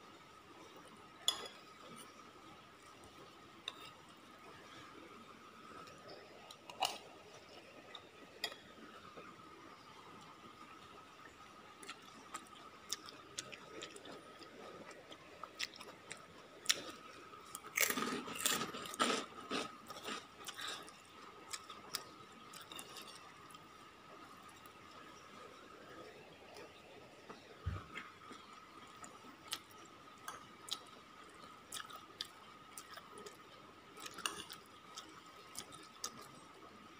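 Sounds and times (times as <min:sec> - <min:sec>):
chewing food: 0:11.8 - 0:23.6, 0:24.4 - 0:36.4.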